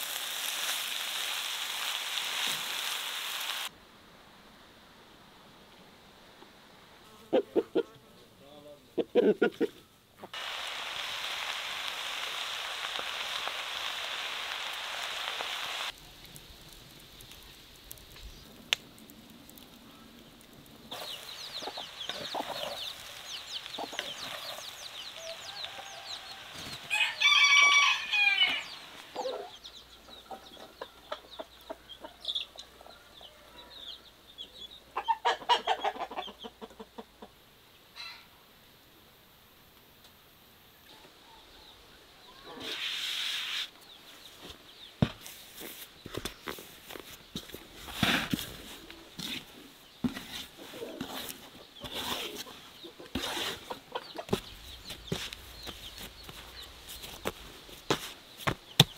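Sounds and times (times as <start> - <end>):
food sizzling in a wok: 0.0 - 3.7, 10.3 - 18.5, 20.9 - 29.2
rooster clucking: 9.0 - 10.4, 35.0 - 37.4, 52.4 - 54.4
rooster crowing: 25.2 - 29.4.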